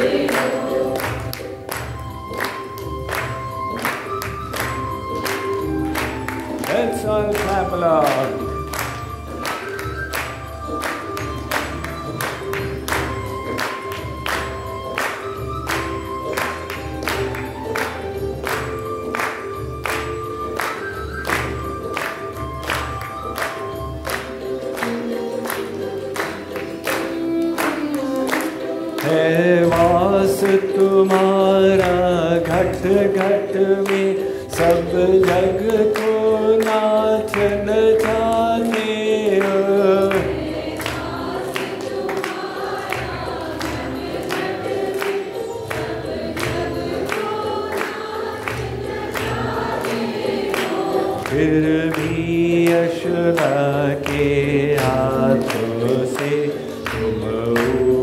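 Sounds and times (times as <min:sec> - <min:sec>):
group singing along: 0:00.0 - 0:01.6, 0:28.5 - 0:58.0
steady percussion beat: 0:00.0 - 0:58.0
lead singer singing: 0:28.8 - 0:48.5, 0:49.6 - 0:58.0.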